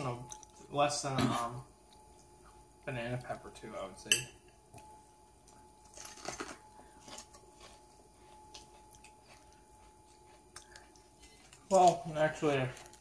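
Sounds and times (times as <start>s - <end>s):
thin steady hum: 0.0s - 13.0s
person chewing crunchy pepper: 5.5s - 12.1s.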